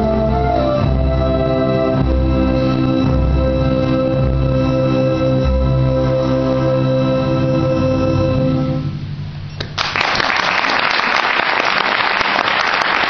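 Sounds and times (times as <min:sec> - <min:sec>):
orchestra sustained chord: 0:00.0 - 0:09.2
audience applause: 0:09.7 - 0:13.0.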